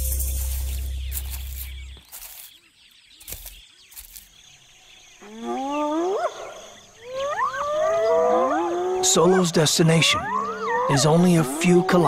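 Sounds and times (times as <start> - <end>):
wild animal calls: 5.2 - 12.0.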